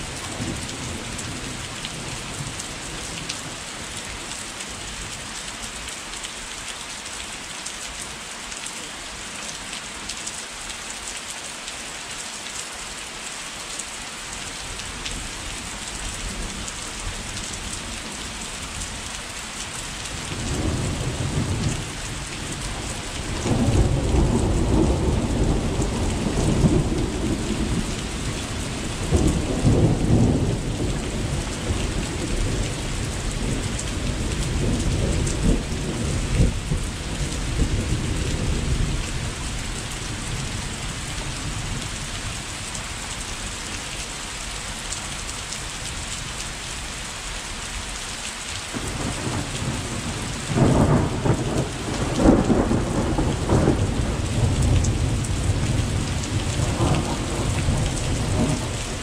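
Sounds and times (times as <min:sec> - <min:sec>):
steady rain: 0:00.0 - 0:59.0
thunder rumbling: 0:48.7 - 0:59.0.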